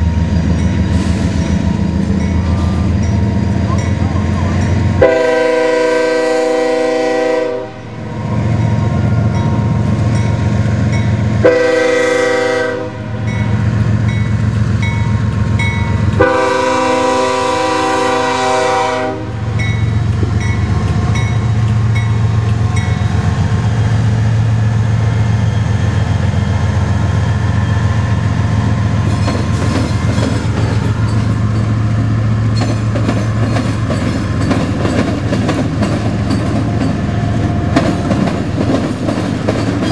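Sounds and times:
diesel locomotive engines droning: 0.0 - 39.9
train air horn blasts: 5.0 - 8.0, 11.4 - 13.4, 16.2 - 19.6
train wheels clicking over rail joints: 19.4 - 39.9.

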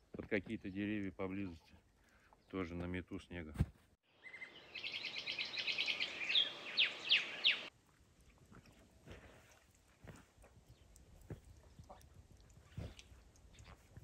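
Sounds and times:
bird chirping and whistling: 4.2 - 7.7.

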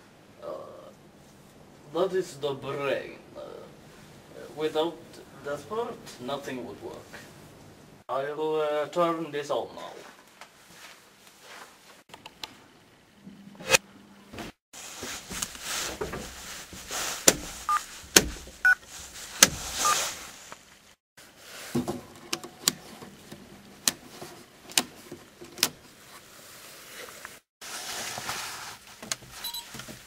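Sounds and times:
rustling: 9.8 - 12.1, 14.4 - 30.0
short faint beeps: 29.4 - 29.7.

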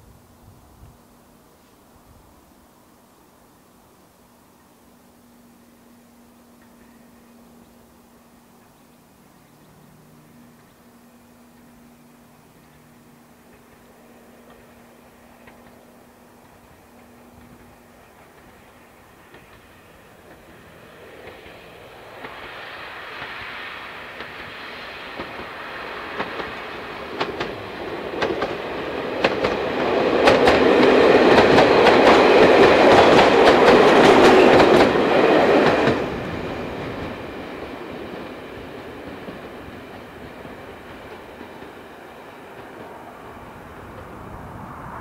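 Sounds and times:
diesel train engines running: 2.6 - 45.0
train wheels clicking over rail joints: 11.5 - 44.2.

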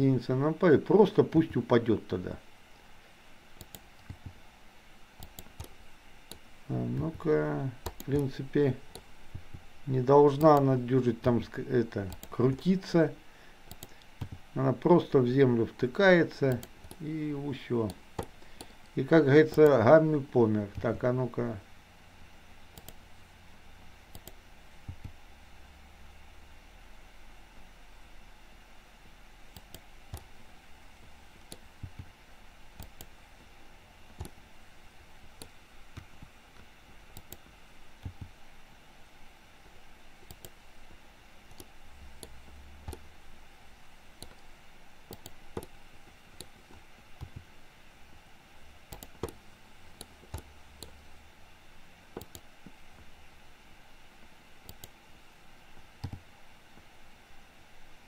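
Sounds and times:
faint steady hiss: 0.0 - 58.0
computer mouse clicks: 3.6 - 4.4, 5.2 - 7.1, 7.8 - 9.6, 12.1 - 12.6, 13.7 - 14.4, 16.5 - 17.1, 17.8 - 19.8, 22.7 - 23.0, 24.1 - 25.2, 29.5 - 30.4, 31.4 - 32.1, 32.7 - 33.2, 34.1 - 34.4, 35.4 - 38.4, 40.2 - 40.6, 41.5 - 43.0, 44.2 - 44.5, 45.1 - 47.5, 48.9 - 51.0, 52.1 - 53.1, 54.6 - 55.0, 56.0 - 56.2.

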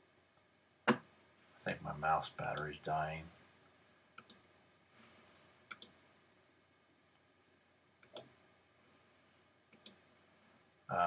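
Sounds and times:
computer mouse clicks: 4.2 - 4.4, 5.7 - 6.0, 8.0 - 8.4, 9.7 - 10.0.

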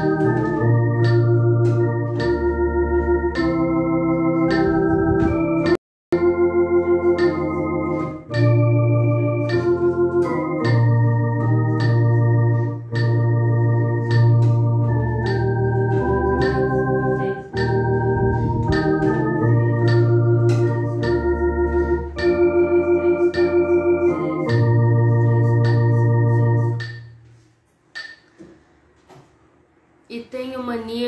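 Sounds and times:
electronic organ playing hymn chords: 0.0 - 27.2
metronome clicks: 9.3 - 16.8, 18.6 - 27.2, 27.9 - 28.4.

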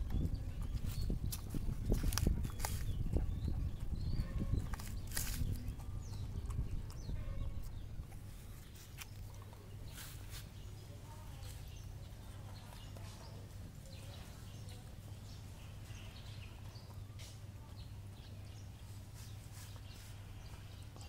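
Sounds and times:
dog chewing food: 0.0 - 9.9.

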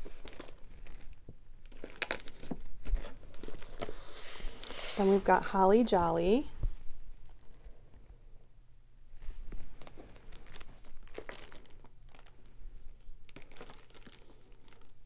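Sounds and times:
plastic envelopes crinkling: 0.0 - 5.6, 9.5 - 15.0.

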